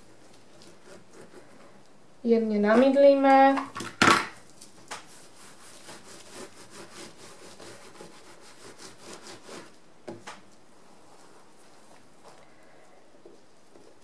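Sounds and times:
hands rubbing soaped fabric: 0:04.4 - 0:09.8, 0:10.5 - 0:12.4.

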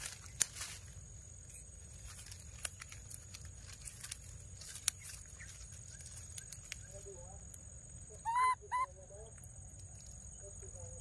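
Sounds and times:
dry leaves rustling: 0:00.0 - 0:08.2.

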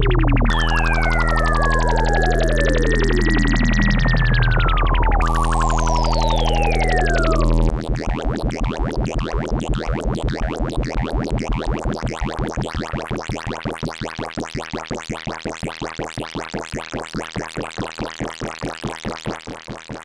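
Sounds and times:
synthesizer falling sweep: 0:00.0 - 0:08.2
pulsed resonant synth tones: 0:00.0 - 0:09.6.

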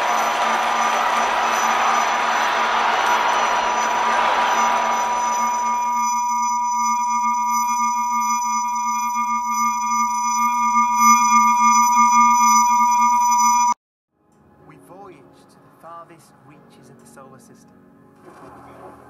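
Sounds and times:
low hum: 0:00.0 - 0:13.8
steady pure tones: 0:00.0 - 0:13.8.

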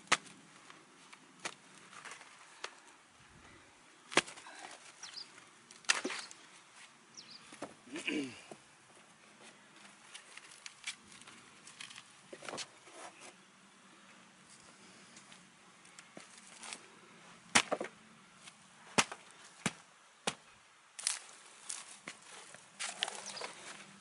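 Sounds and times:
dry straw crackling: 0:09.8 - 0:12.2, 0:18.4 - 0:24.0
sticks knocking and snapping: 0:17.5 - 0:22.2.

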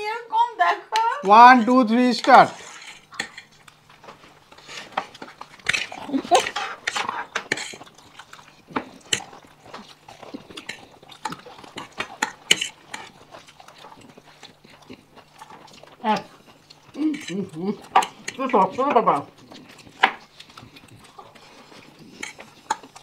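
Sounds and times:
cutlery clinking on plates: 0:02.8 - 0:03.5.

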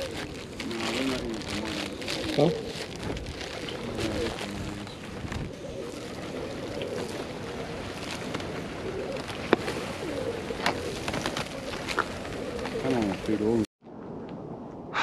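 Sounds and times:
pigeons cooing: 0:00.0 - 0:13.7.

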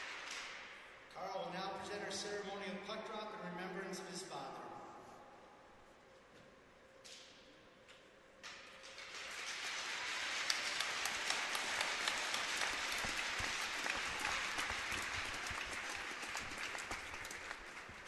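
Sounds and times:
crowd applauding: 0:00.0 - 0:00.6, 0:08.8 - 0:18.0.

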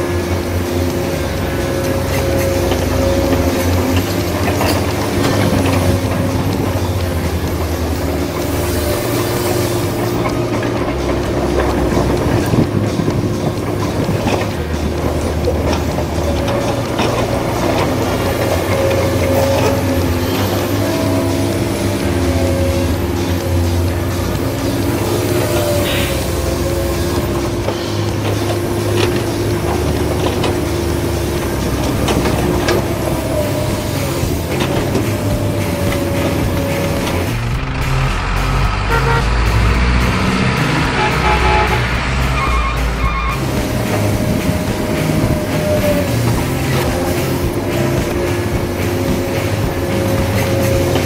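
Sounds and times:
steady mechanical hum: 0:00.0 - 0:38.2
high motor whine: 0:00.0 - 0:51.0.

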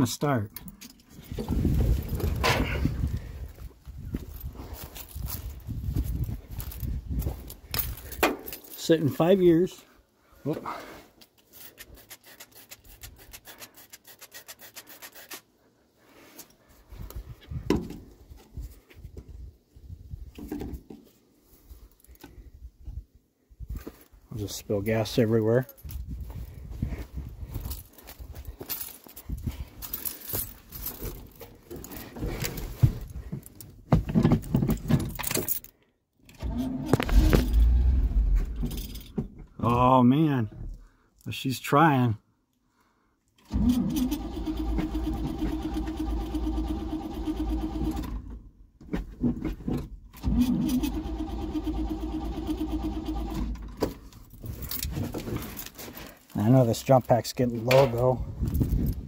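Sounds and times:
rustling of handling: 0:00.6 - 0:15.5, 0:25.2 - 0:35.8, 0:53.7 - 0:59.0
keys jangling: 0:06.0 - 0:08.9, 0:27.6 - 0:31.4, 0:35.0 - 0:35.8
starter cranking engine: 0:36.4 - 0:38.3, 0:43.5 - 0:48.3, 0:50.2 - 0:53.6
low thumps: 0:37.0 - 0:39.4.

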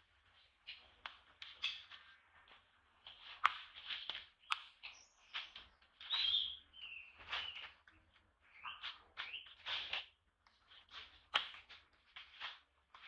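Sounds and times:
animal squeaks and chirps: 0:06.1 - 0:07.7.

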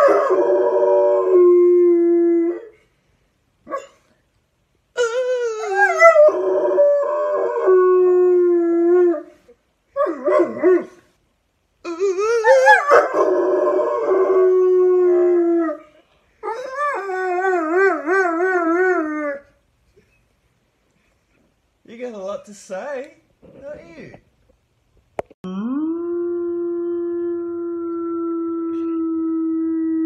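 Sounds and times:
dog howling: 0:25.6 - 0:30.0.

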